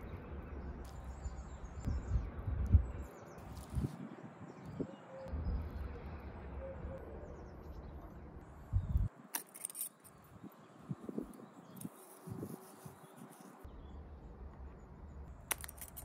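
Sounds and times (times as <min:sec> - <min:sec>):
low rumble: 0:05.3 - 0:09.1.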